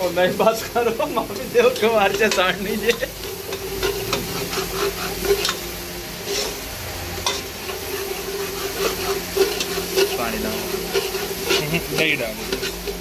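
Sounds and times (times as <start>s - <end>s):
masala sizzling in oil: 0.0s - 13.0s
spoon scraping metal pot: 1.7s - 5.6s, 7.2s - 13.0s.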